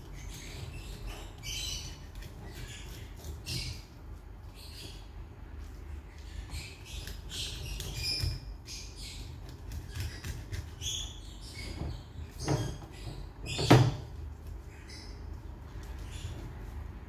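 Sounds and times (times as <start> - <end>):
squeaks and scrapes of fish: 6.3 - 14.0.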